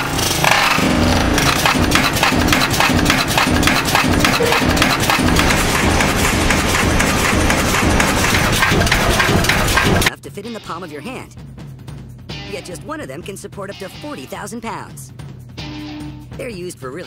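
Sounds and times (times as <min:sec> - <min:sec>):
forging press clatter: 0:01.4 - 0:10.1
heavy rhythmic beat: 0:01.7 - 0:10.1.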